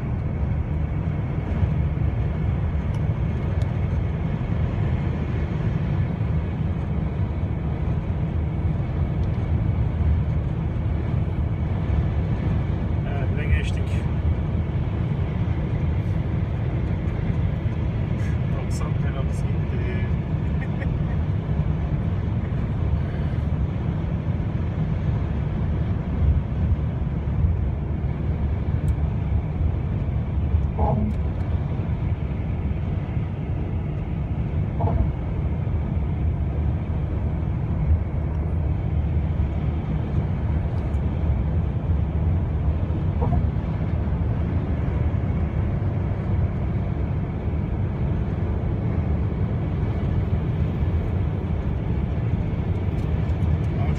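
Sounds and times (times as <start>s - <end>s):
car tyres and engine rumble: 0.0s - 53.9s.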